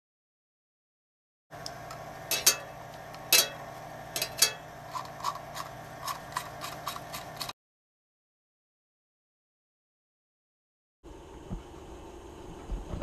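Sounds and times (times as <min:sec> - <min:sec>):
metal hex key clinking on screws: 0:02.3 - 0:02.7, 0:04.2 - 0:07.5.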